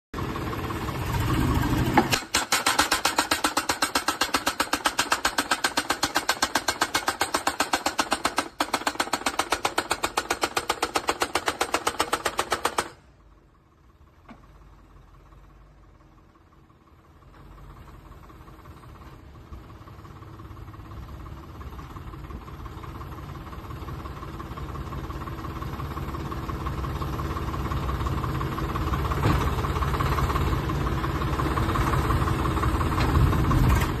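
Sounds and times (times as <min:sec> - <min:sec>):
tractor engine and hydraulics: 0:00.2 - 0:34.0
hydraulic hammer pounding post: 0:01.9 - 0:13.0.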